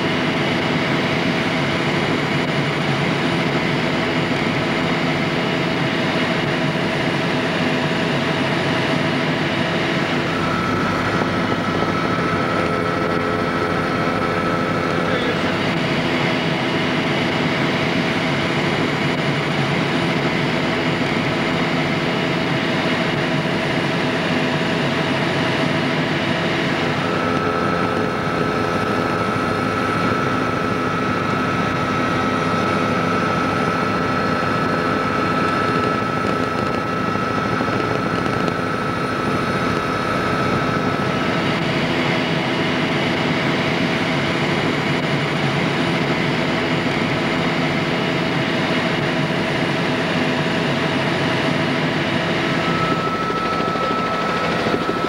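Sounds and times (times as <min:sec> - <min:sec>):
helicopter engine and rotor drone: 0:00.0 - 0:55.0
thin high whine: 0:48.5 - 0:55.0.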